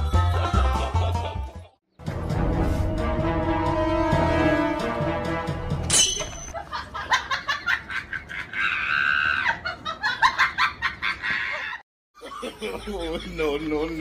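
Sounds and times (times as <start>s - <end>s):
person laughing hard: 6.6s - 13.5s.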